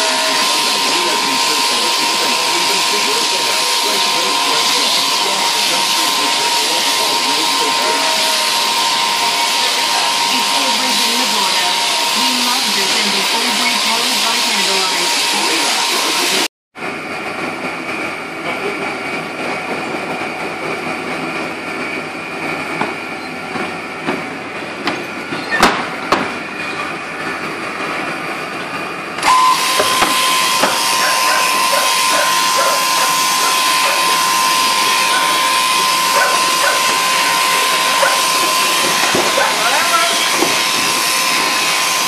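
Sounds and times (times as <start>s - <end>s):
electric shearing handpiece whine: 0.0s - 16.5s, 29.2s - 42.0s
shearing gear mechanical hiss: 29.3s - 42.0s.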